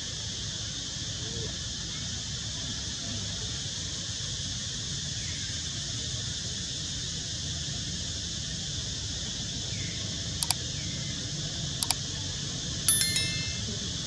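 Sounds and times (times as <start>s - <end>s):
bright bell chime: 12.9s - 13.7s.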